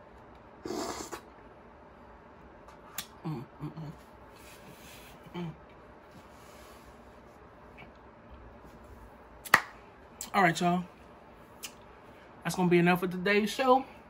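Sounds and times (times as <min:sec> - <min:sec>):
person humming mm: 0:00.6 - 0:01.2, 0:03.2 - 0:04.0, 0:05.2 - 0:05.6
wet slurp from a spoon: 0:00.6 - 0:01.3.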